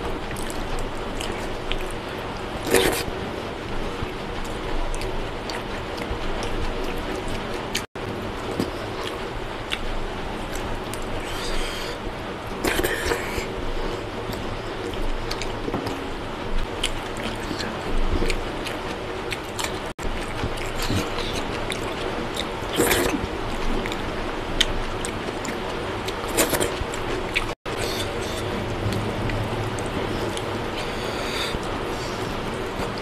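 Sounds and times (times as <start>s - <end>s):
person chewing: 0.3s - 2.0s, 2.6s - 3.1s, 8.5s - 13.6s, 14.3s - 16.0s, 16.6s - 24.0s, 24.6s - 33.0s.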